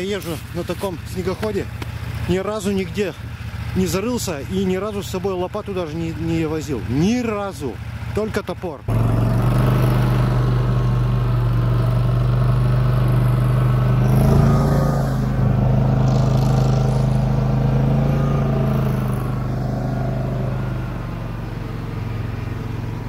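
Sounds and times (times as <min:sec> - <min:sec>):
snowmobile engine running: 0:08.9 - 0:22.6.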